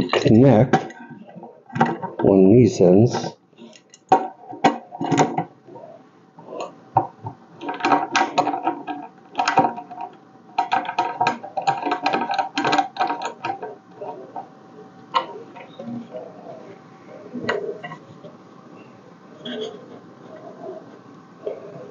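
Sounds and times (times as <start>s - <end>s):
clicks and rattles of parts handled: 3.2s - 5.5s, 6.5s - 15.9s.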